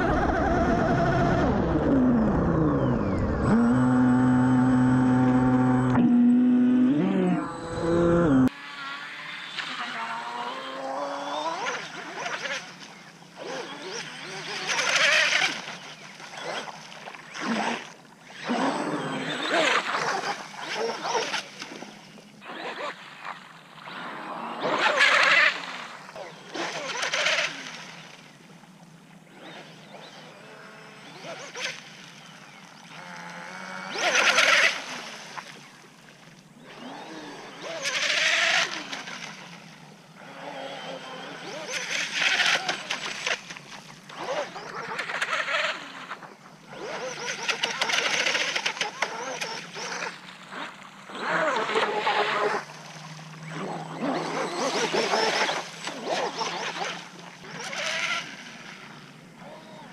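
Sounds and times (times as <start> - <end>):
steady low hum: 0.0 - 8.5
rc boat motor whining: 0.0 - 59.9.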